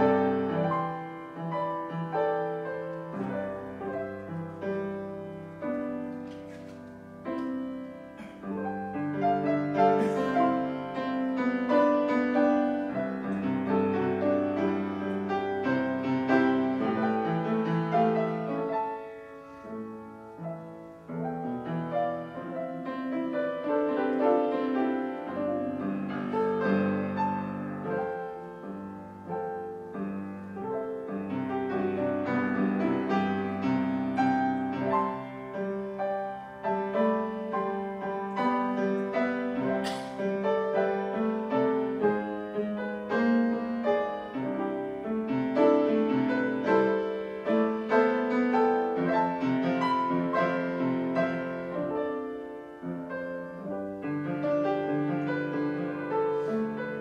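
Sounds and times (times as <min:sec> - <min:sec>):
solo piano piece: 0:00.0 - 0:57.0
sharp click: 0:39.8 - 0:40.2.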